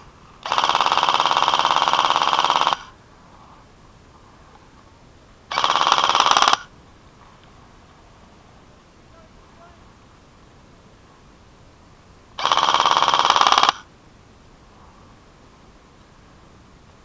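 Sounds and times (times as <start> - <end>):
airsoft rifle bursts: 0.4 - 2.9, 5.5 - 6.7, 12.4 - 13.9.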